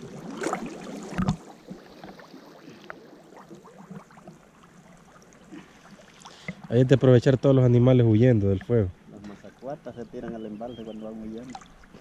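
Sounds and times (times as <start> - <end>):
water sloshing and dripping: 0.0 - 7.0, 11.2 - 12.0
water splashes: 0.0 - 12.0.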